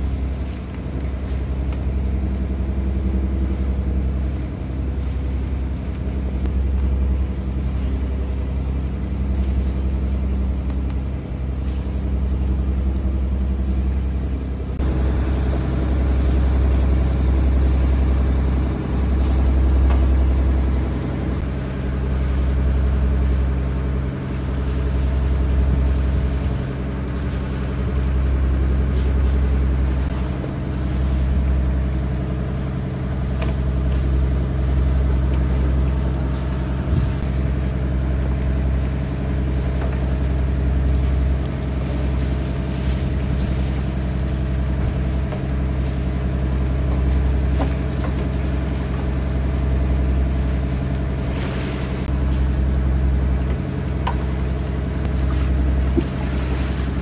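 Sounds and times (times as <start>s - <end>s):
boat engine droning: 0.0s - 57.0s.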